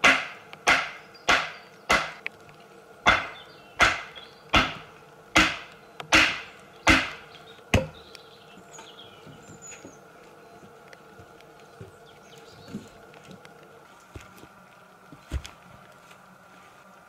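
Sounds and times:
wooden stake being hammered: 0.0s - 2.2s, 3.0s - 8.0s.

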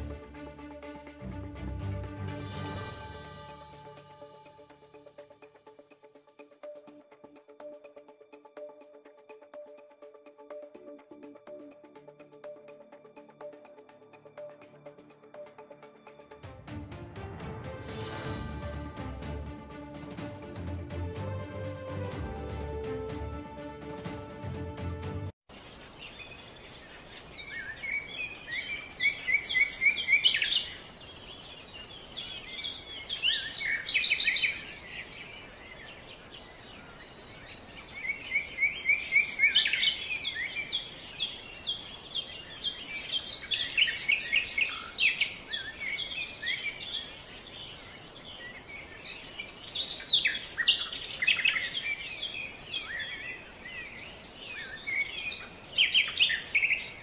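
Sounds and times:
quiet outdoor hiss: 25.5s - 57.0s
songbirds chirping and trilling: 25.5s - 57.0s.

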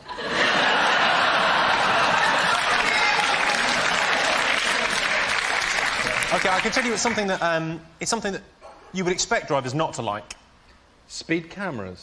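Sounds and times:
studio audience applauding: 0.5s - 7.5s.

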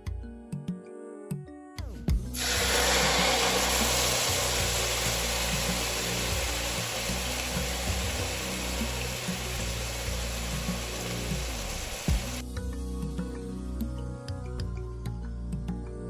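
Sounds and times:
meat sizzling in oil: 2.4s - 12.4s.

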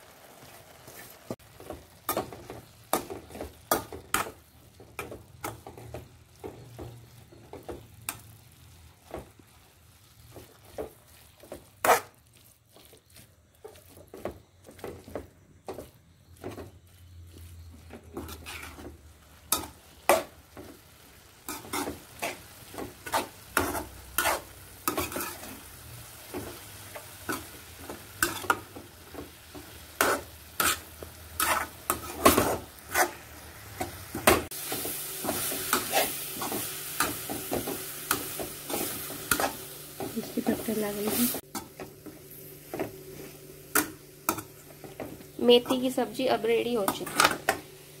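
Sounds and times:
greens sizzling: 0.0s - 48.0s
metal spatula scraping pan: 10.6s - 14.0s, 17.8s - 20.3s, 21.4s - 25.6s, 29.9s - 33.3s, 35.3s - 39.6s.

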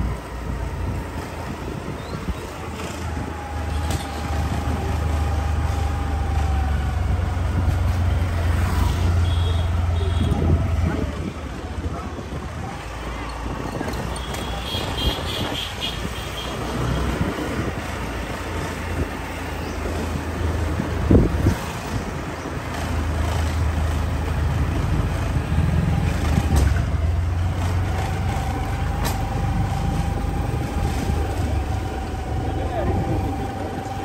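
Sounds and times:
motorbike engine rumble: 0.0s - 34.0s.

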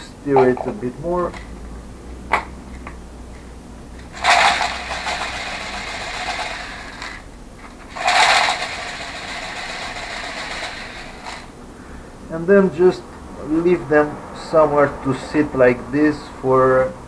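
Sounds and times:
ball bearings rattling in liquid: 4.1s - 7.2s, 7.9s - 11.5s.

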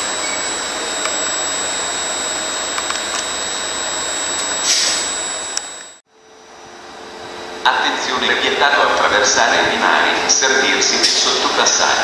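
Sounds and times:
high-pitched whine: 0.0s - 12.0s
short hiss: 4.6s - 5.0s.

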